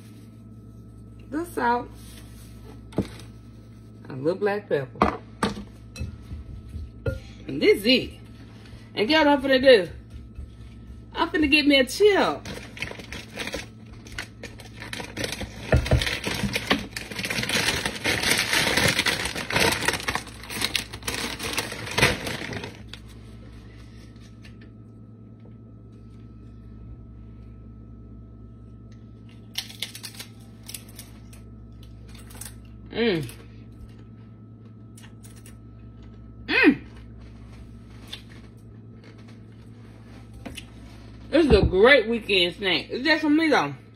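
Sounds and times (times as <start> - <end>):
steady hum: 0.0 - 43.9
chip crunching when chewed: 29.2 - 37.3.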